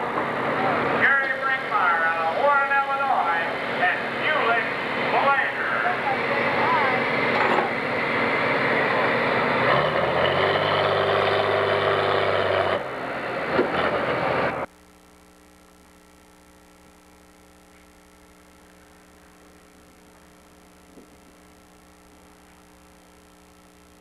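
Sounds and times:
diesel tractor engine running hard: 0.0 - 14.7
faint steady hum: 14.6 - 24.0.

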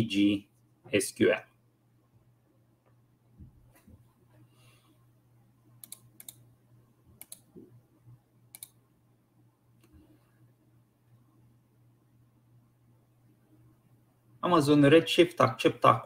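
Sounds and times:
low steady hum: 0.0 - 16.0
computer mouse clicks: 5.8 - 6.4, 7.1 - 7.5, 8.5 - 8.8.

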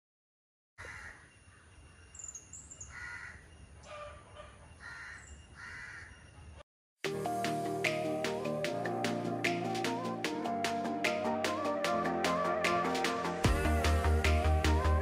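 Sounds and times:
crows cawing: 0.8 - 1.2, 2.9 - 4.2, 4.8 - 6.2
faint high bird chirps: 1.0 - 6.6
background music: 7.0 - 15.0.

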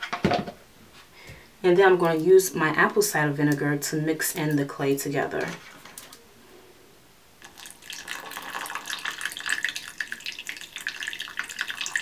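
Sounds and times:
liquid pouring into a glass bowl: 7.4 - 12.0.

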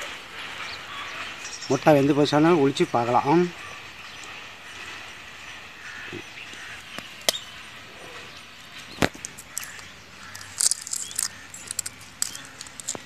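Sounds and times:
egg shell cracking clicks: 9.0 - 13.0
shell pieces crackling: 9.1 - 13.0.

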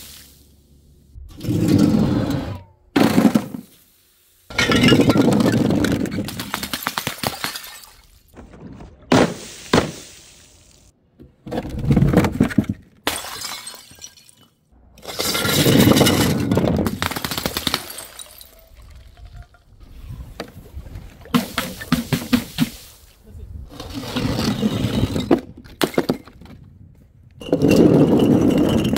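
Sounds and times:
glass bottles shattering: 4.5 - 8.4, 13.0 - 19.7.

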